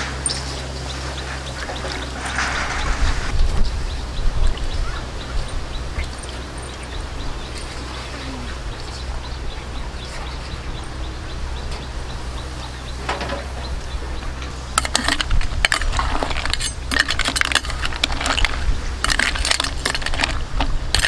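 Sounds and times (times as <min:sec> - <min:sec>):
steady low rumble: 0:00.0 - 0:21.0
faint bird chirps: 0:00.1 - 0:15.3.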